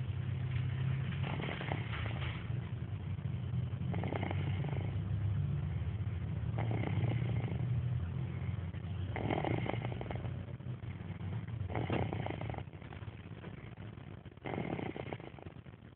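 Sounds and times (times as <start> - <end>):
steady low rumble: 0.0 - 15.9
toddler snoring: 1.2 - 2.5, 3.8 - 12.9, 14.4 - 15.6.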